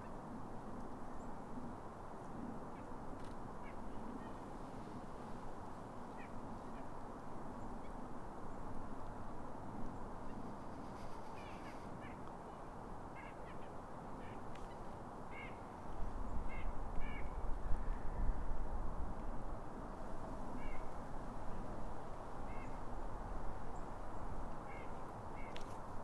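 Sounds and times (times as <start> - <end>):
faint bird calls: 6.1 - 6.9, 10.2 - 15.7, 22.4 - 22.8.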